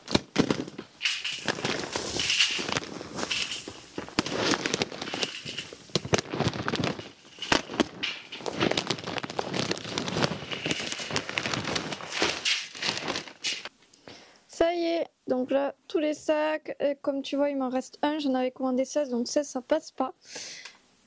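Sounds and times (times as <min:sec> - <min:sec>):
plastic crinkling: 0:00.0 - 0:13.7
sacks knocking: 0:00.0 - 0:13.7.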